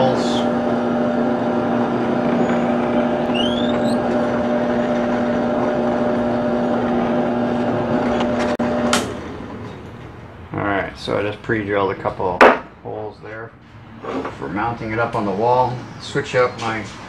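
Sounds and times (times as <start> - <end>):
drill press motor running: 0.0 - 9.0.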